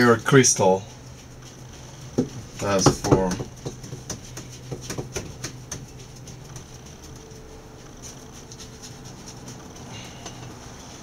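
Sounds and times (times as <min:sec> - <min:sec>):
steady low hum: 0:00.0 - 0:11.0
soft rubbing of dog's ear: 0:05.9 - 0:11.0.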